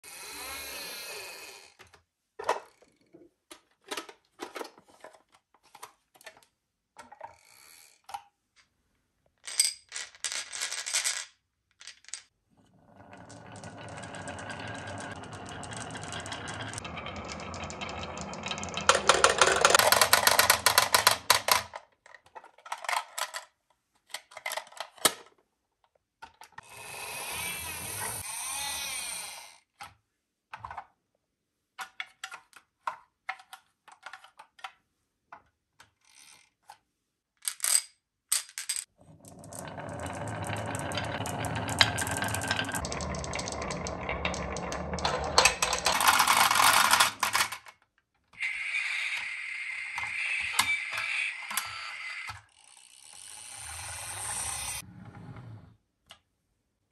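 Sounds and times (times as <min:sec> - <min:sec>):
marbles rattling down wooden track: 0:09.4 - 0:12.3, 0:12.9 - 0:21.7, 0:37.5 - 0:47.7, 0:48.4 - 0:54.8.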